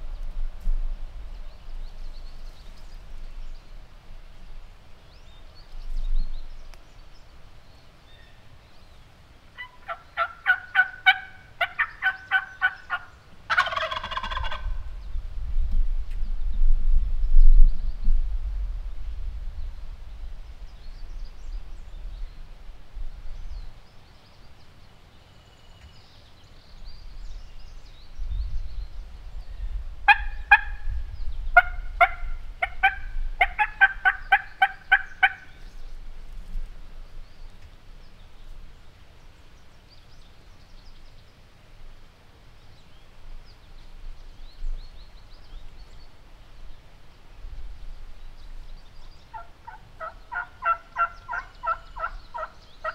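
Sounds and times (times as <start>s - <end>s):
turkey yelps: 9.6s - 14.8s, 30.1s - 30.8s, 31.6s - 35.5s, 49.3s - 52.9s.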